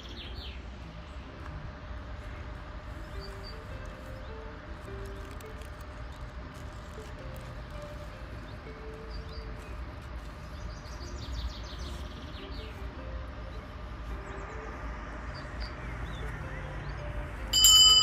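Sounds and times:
bird chirps: 8.4 - 17.2.

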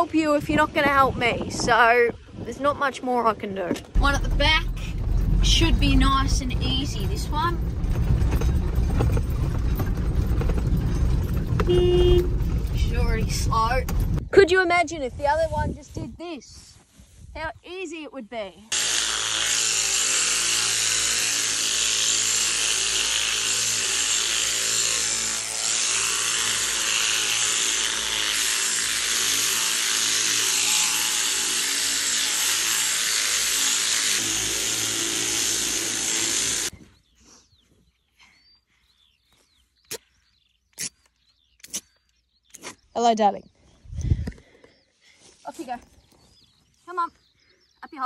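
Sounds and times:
electric shears running: 4.0 - 14.1, 18.7 - 36.7.

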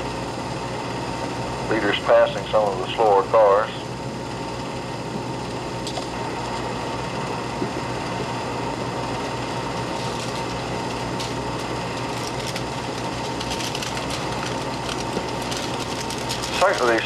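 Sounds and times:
film projector whirring: 0.0 - 17.0
faint crackles: 9.3 - 17.0.

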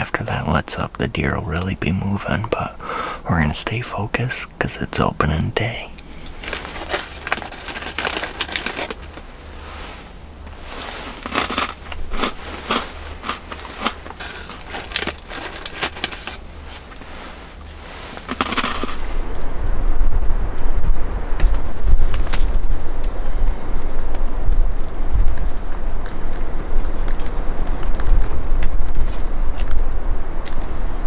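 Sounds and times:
low rumble: 0.0 - 31.0
plastic wrapper crinkling: 6.2 - 9.6, 10.5 - 19.0.

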